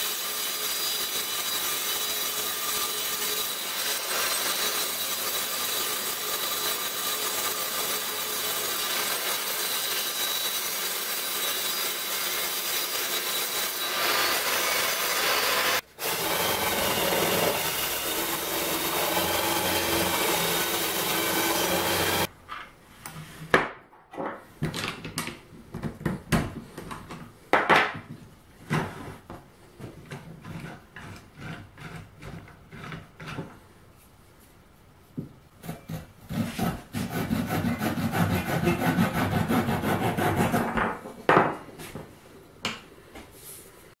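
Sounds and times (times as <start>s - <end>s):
power tools running: 13.0s - 22.3s
scraping on wood: 30.0s - 33.6s
wooden parts knocking on workbench: 40.6s - 41.6s.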